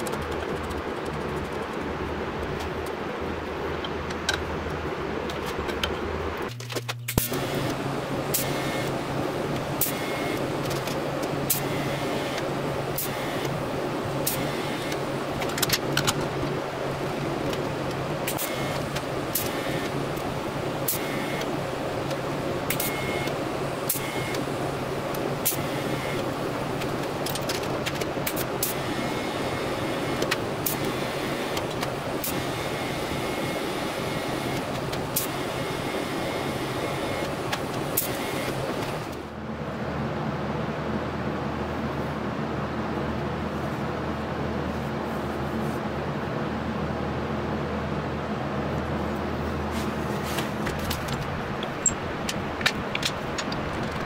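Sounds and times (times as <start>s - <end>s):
welding arc buzzing hiss: 0.0s - 39.3s.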